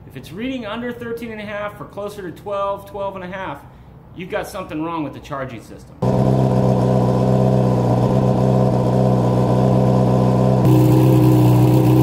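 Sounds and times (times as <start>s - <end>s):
motorcycle engine idling: 6.0s - 12.0s.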